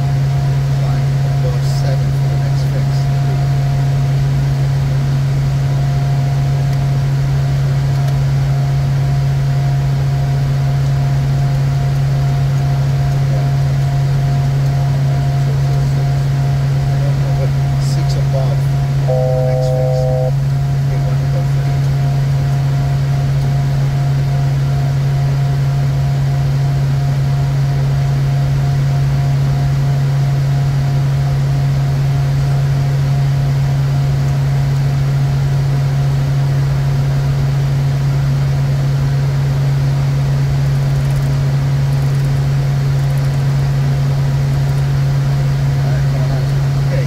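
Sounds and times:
jet cockpit drone: 0.0s - 47.0s
faint high tone: 19.1s - 20.4s.

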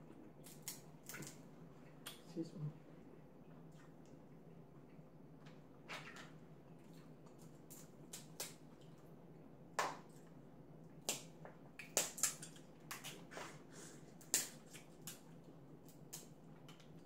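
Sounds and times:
crab shells cracking: 11.0s - 13.2s.

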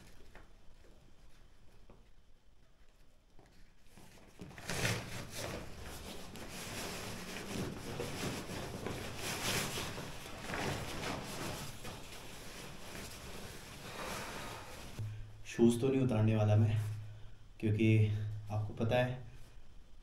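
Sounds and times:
sleeping bag rustling: 3.4s - 15.0s.

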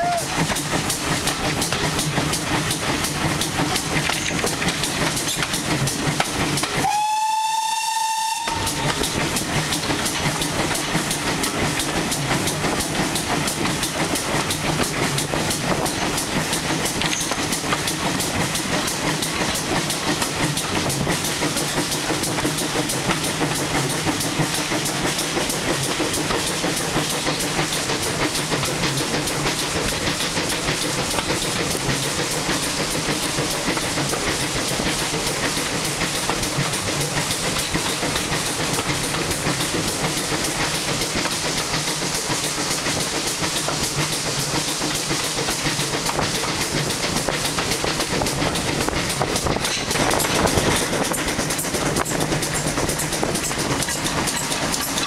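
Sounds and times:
steam locomotive exhaust beats: 0.0s - 55.0s
wheels on rails: 0.0s - 55.0s
steam whistle blast: 6.8s - 8.9s.

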